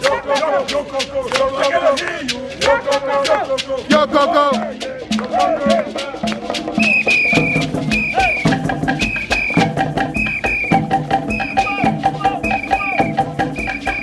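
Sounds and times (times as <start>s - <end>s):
upbeat music with whistle melody: 6.6s - 14.0s.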